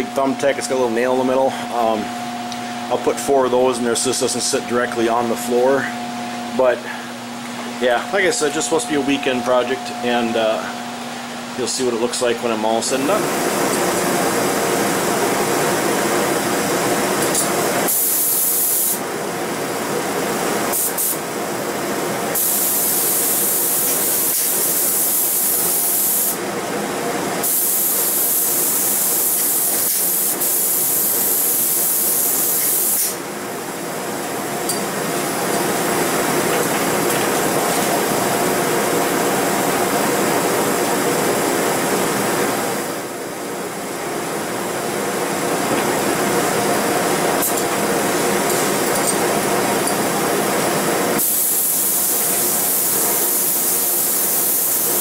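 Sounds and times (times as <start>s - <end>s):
fan-like hum: 0.0s - 55.0s
spray gun hissing: 17.9s - 19.0s, 22.4s - 26.4s, 27.4s - 33.2s, 51.2s - 55.0s.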